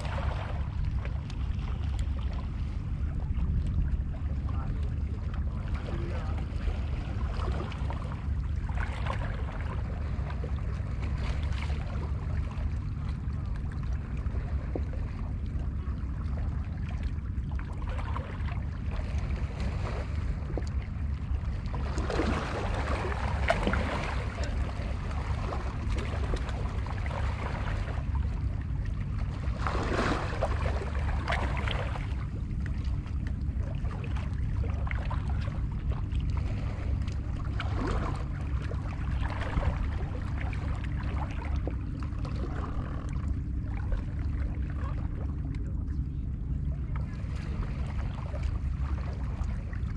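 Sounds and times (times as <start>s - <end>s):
steady low rumble: 0.0s - 49.9s
sea waves splashing against rocks: 29.3s - 32.8s.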